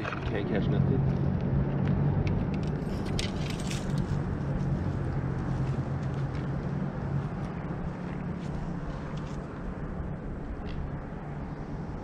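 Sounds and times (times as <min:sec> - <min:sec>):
light clicks and rattles: 0:01.8 - 0:04.2.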